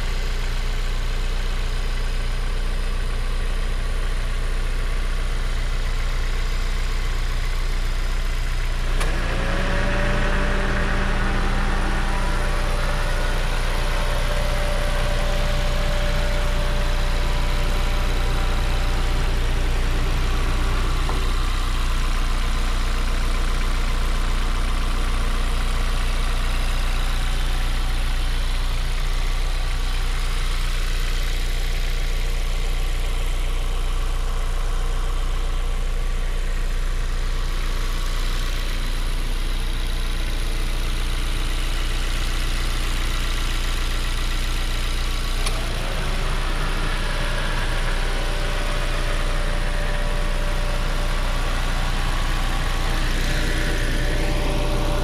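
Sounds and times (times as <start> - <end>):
car engine idling: 0.0 - 55.0
small click: 8.9 - 9.2, 45.4 - 45.6.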